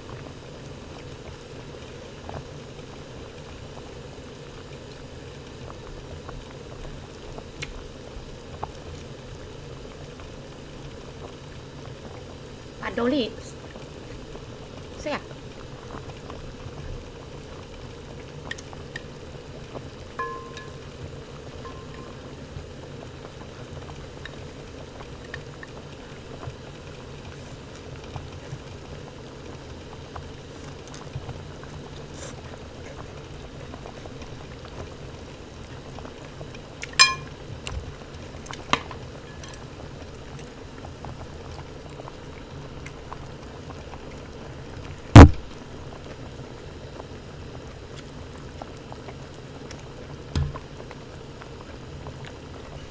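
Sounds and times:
broth simmering in a pot: 0:00.0 - 0:52.9
ringing clink: 0:20.2 - 0:20.9, 0:37.0 - 0:37.3.

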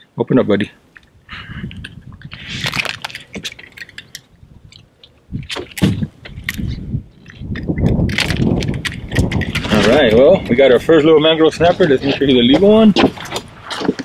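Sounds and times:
clicks and rustling of fish handling: 0:01.7 - 0:10.6, 0:11.7 - 0:14.0
thumps: 0:05.4 - 0:10.6.

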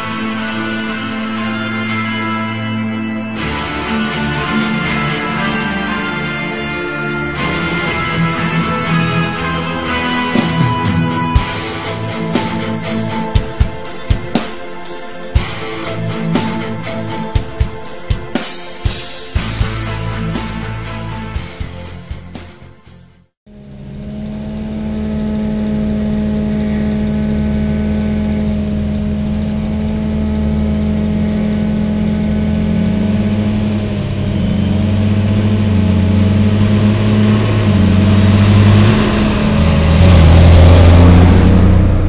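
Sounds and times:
tractor diesel engine running: 0:00.0 - 0:22.0, 0:23.5 - 0:42.0.

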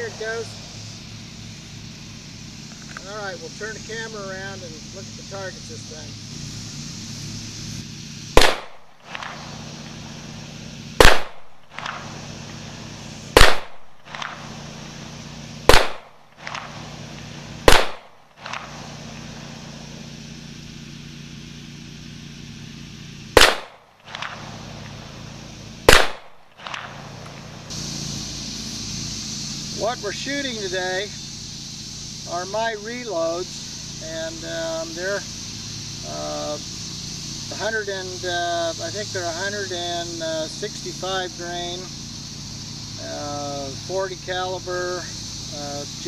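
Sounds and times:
pistol shots: 0:08.4 - 0:09.6, 0:11.0 - 0:12.2, 0:13.3 - 0:14.6, 0:15.7 - 0:16.9, 0:17.6 - 0:18.9, 0:23.4 - 0:24.6, 0:25.8 - 0:27.3.

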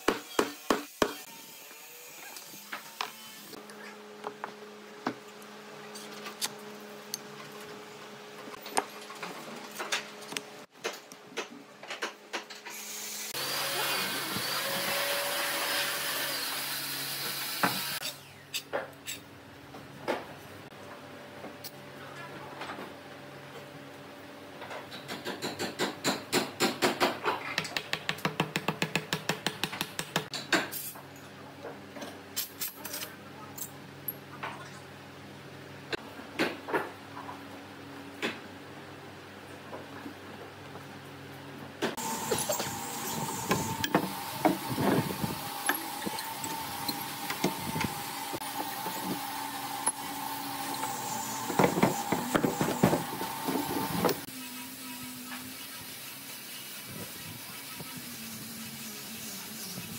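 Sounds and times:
woodworking machine whine: 0:13.1 - 0:18.3, 0:42.0 - 0:56.3.

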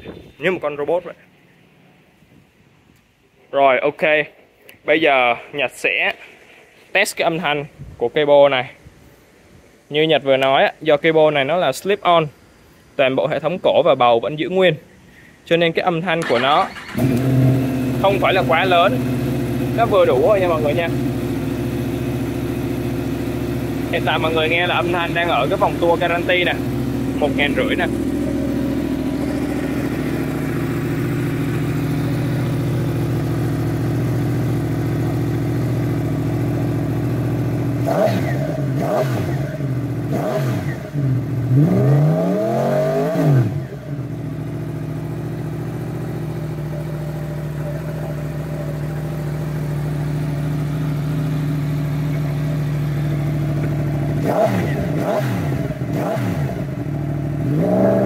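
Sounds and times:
motorcycle engine idling and revving: 0:16.2 - 0:58.0.

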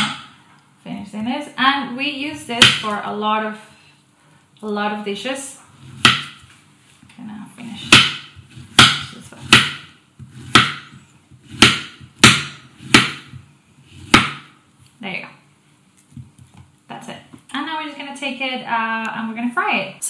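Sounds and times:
knife hitting cutting board: 0:06.0 - 0:06.4, 0:07.8 - 0:13.4, 0:14.0 - 0:14.5.

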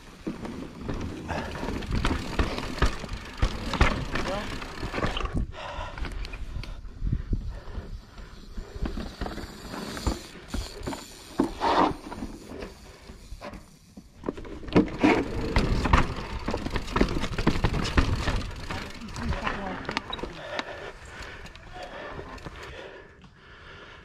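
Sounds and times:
mountain bike knocks and rattles: 0:00.1 - 0:05.4, 0:14.1 - 0:20.4.

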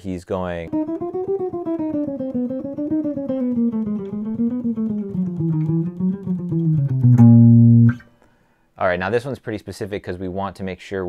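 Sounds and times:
electric guitar jazz line: 0:00.7 - 0:08.1.

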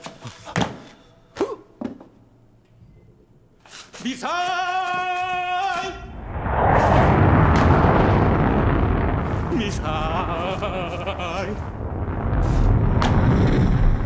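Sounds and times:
loud explosion-like blast: 0:06.0 - 0:14.0.

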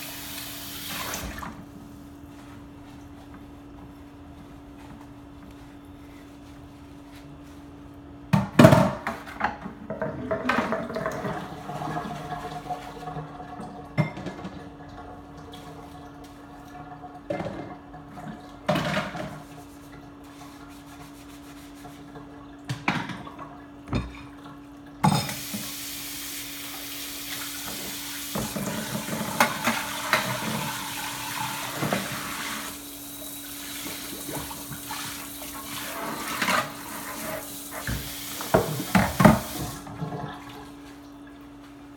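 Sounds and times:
tap water running into sink: 0:00.0 - 0:01.6, 0:25.1 - 0:40.7
dishes clinking in sink: 0:13.9 - 0:14.6, 0:22.7 - 0:25.6.

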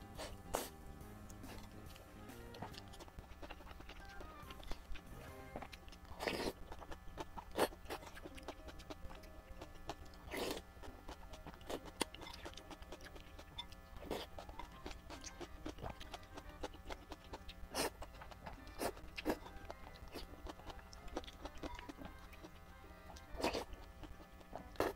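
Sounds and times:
faint background music: 0:00.0 - 0:24.9
slurping noodles: 0:06.1 - 0:08.1, 0:10.3 - 0:10.7.

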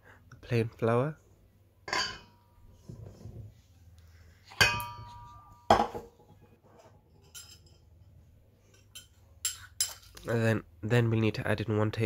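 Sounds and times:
saucepan clinking against metal bowl: 0:04.6 - 0:05.9.

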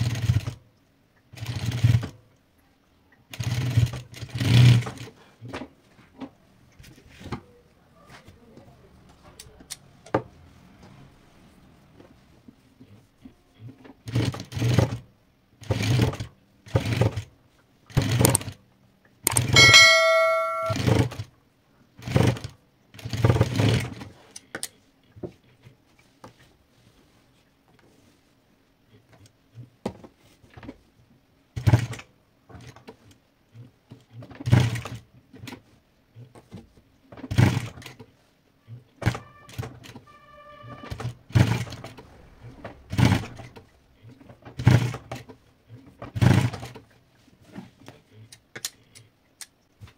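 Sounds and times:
ringing tone: 0:19.6 - 0:20.9.

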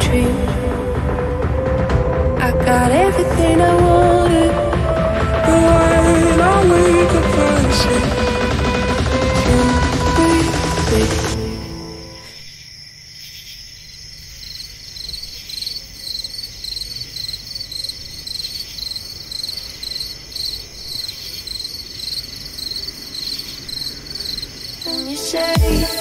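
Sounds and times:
crickets chirping: 0:11.4 - 0:25.5
insects trilling: 0:11.4 - 0:25.5.

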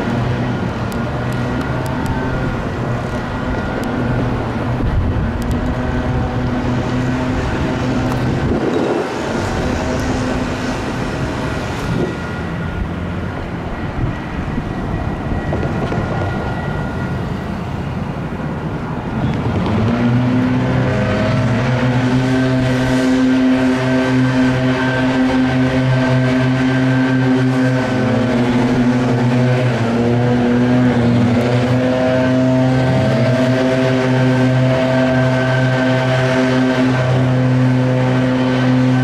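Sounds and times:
train electric drive humming: 0:00.0 - 0:39.0
railroad crossing bells ringing: 0:12.0 - 0:19.2.

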